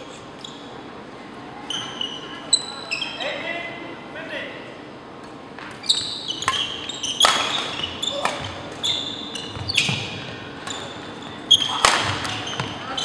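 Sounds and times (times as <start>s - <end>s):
sneakers squeaking on floor: 0.0s - 0.8s, 1.6s - 3.4s, 5.6s - 13.0s
racket striking shuttlecock: 6.4s - 8.8s, 11.7s - 12.8s.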